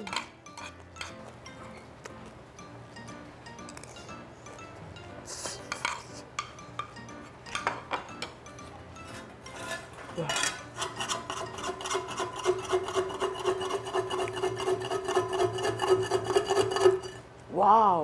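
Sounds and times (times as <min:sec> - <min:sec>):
metal spatula scraping iron pan: 0:09.0 - 0:17.3.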